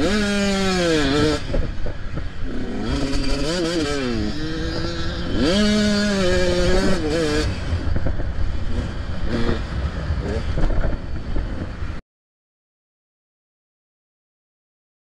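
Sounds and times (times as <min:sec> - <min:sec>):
motocross bike engine revving: 0:00.0 - 0:11.3
low wind rumble: 0:00.0 - 0:12.0.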